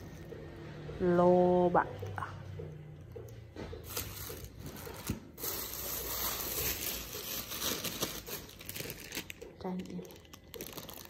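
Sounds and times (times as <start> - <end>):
plastic bags rustling: 3.8 - 11.0.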